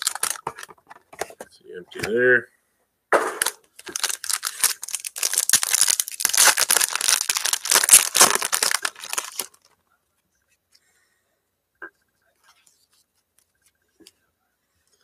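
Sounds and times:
wrapper tearing and crinkling: 0.0 - 0.7, 3.4 - 9.7.

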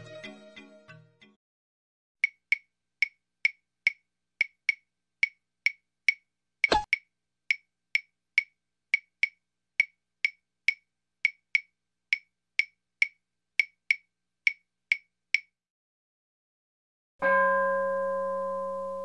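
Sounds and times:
wood block clacks: 2.2 - 15.5.

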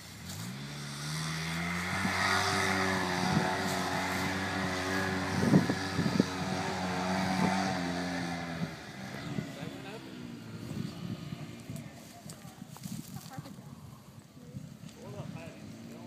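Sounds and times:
engine revving under load: 0.0 - 12.1.

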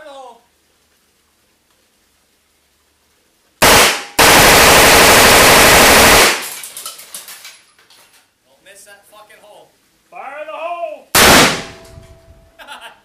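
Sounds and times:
submachine gun firing bursts: 3.6 - 6.6, 11.2 - 11.8.

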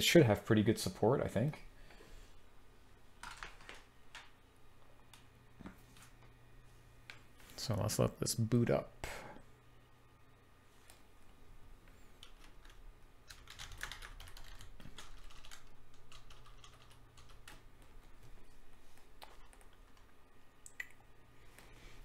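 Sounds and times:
low electrical hum: 0.0 - 22.0
keyboard typing: 3.2 - 4.3, 12.2 - 17.7, 19.0 - 20.1.

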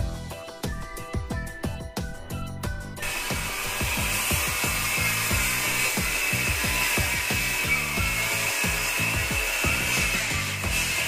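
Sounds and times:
background music with steady beat: 0.0 - 11.0
circular saw cutting plywood: 3.0 - 11.0.

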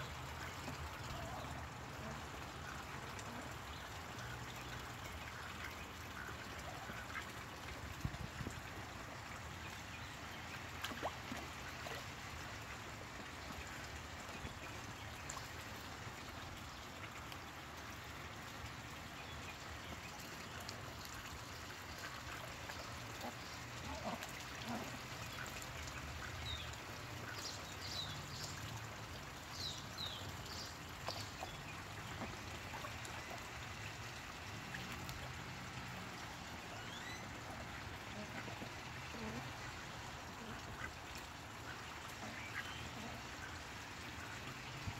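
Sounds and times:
water trickling: 0.0 - 44.9
ducks splashing in water: 0.1 - 18.6.

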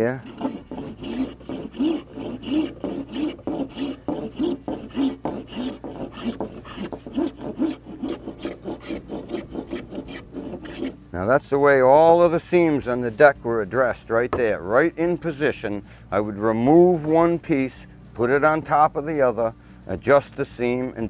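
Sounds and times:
block plane shaving wood: 0.0 - 11.0.

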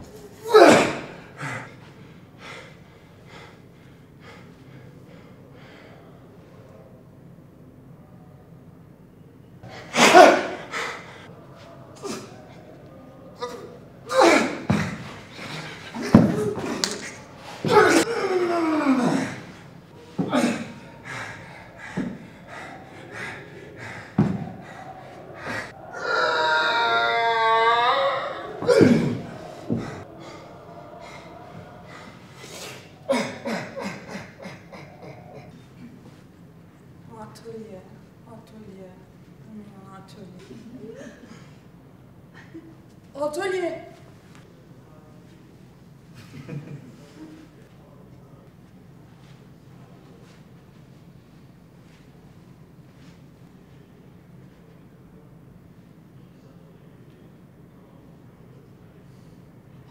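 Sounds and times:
short grunts falling in pitch: 23.2 - 30.3.

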